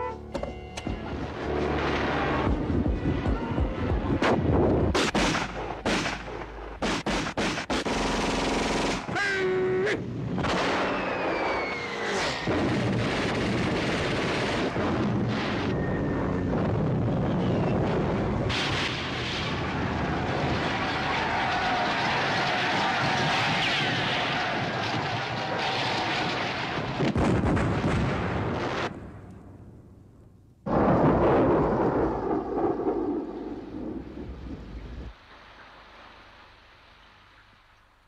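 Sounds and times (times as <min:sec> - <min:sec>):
steady rumbling din: 0:00.0 - 0:36.9
gunshots: 0:04.1 - 0:09.5, 0:10.4 - 0:15.7
rapid gunfire rattle: 0:05.0 - 0:09.1
falling whistling tones: 0:10.8 - 0:12.5, 0:15.6 - 0:16.4.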